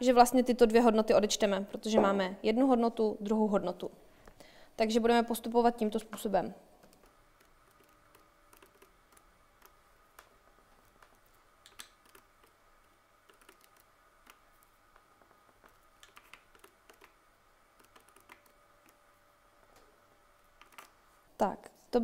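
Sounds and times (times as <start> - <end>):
calculator keys clicking: 6.8 - 10.3, 13.3 - 14.4, 15.6 - 17.2, 17.8 - 19.0.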